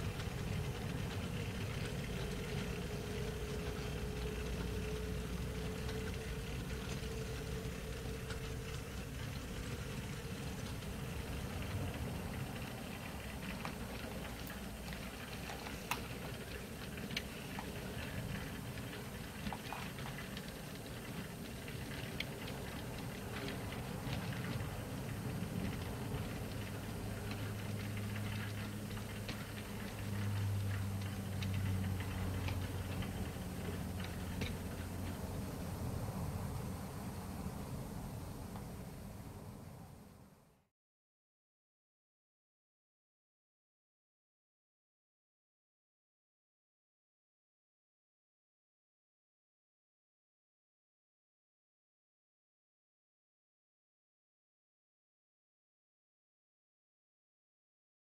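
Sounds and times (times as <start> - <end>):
model train rolling over track: 0.0 - 39.6
steady hum: 0.0 - 40.2.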